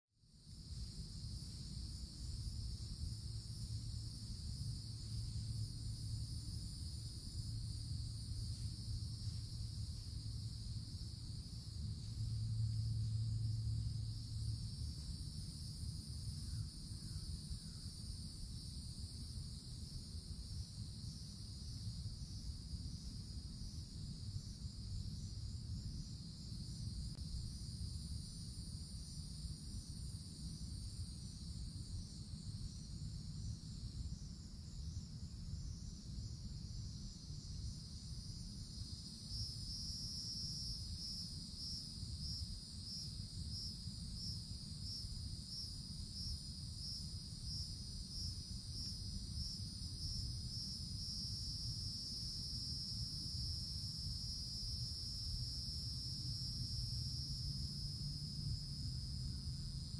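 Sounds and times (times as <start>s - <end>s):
cicadas buzzing: 0.4s - 59.9s
low steady rumble: 0.6s - 39.0s.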